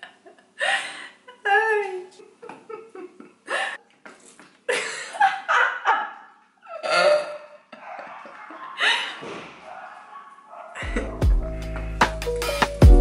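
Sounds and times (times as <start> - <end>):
woman laughing: 0.0 - 3.9, 4.7 - 9.2.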